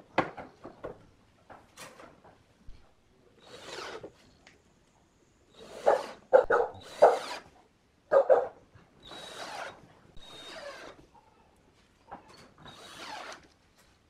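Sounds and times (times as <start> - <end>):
cordless drill driving screws: 3.4 - 4.2, 5.5 - 7.5, 9.0 - 11.0, 12.6 - 13.6.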